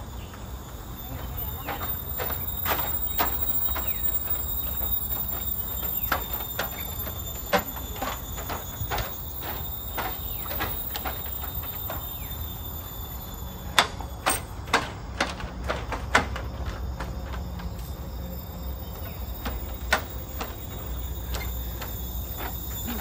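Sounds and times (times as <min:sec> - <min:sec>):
insects droning: 0:00.0 - 0:23.0
sharp knocks: 0:13.7 - 0:17.4.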